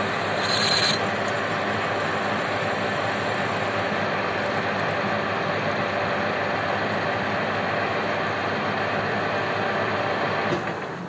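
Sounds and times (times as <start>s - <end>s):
metal lathe whirring: 0.0s - 4.8s.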